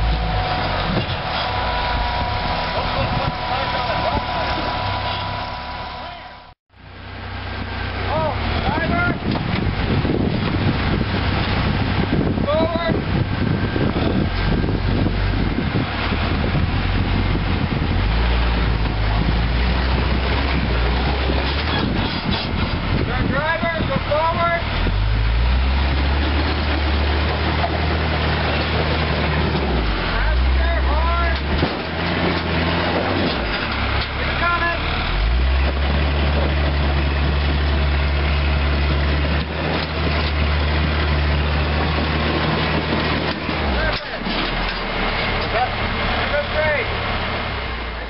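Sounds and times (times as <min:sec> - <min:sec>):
engine working at low speed: 0:00.0 - 0:48.0.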